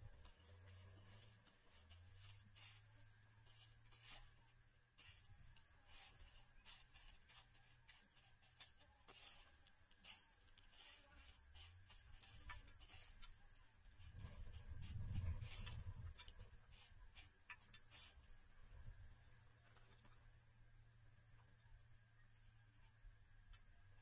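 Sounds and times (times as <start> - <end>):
crunching of dry crumbs: 0.0 - 18.4
low steady hum: 0.0 - 24.0.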